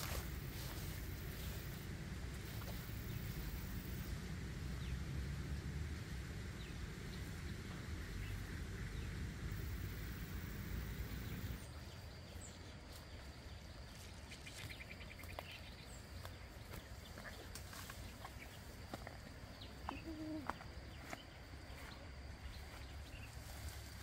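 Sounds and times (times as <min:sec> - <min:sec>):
rustling and snapping undergrowth: 0:13.9 - 0:19.2.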